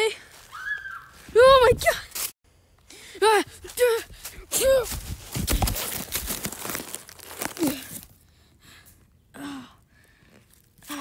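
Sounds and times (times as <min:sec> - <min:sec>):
dry leaves crunching and rustling: 0:04.3 - 0:08.1
microphone handling thumps: 0:04.8 - 0:06.5.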